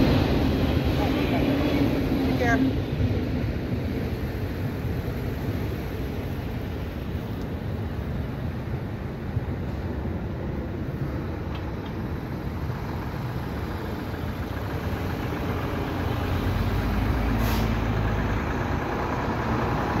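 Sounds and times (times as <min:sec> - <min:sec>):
traffic rumble: 0:00.0 - 0:20.0
car passing close: 0:12.5 - 0:20.0
short hiss: 0:17.3 - 0:17.8.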